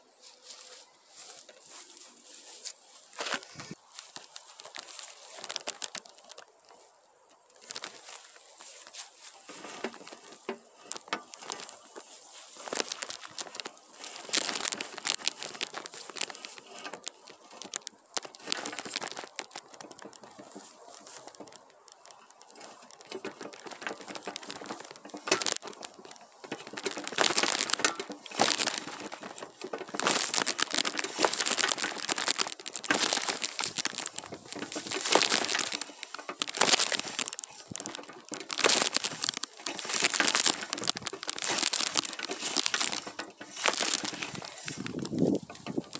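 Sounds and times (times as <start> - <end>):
pine branches rustling: 0.0 - 45.9.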